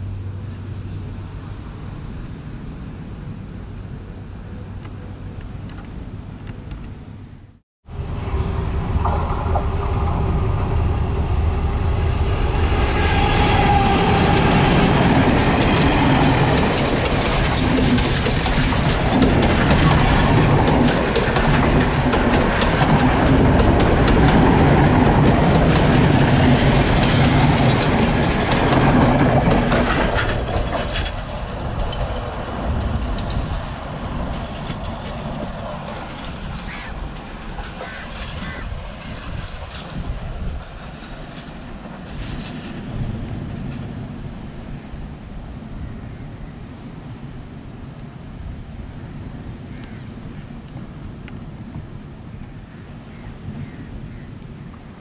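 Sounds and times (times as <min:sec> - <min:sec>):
diesel train engine: 0:00.0 - 0:52.6
wheels clicking over rail joints: 0:13.5 - 0:44.3.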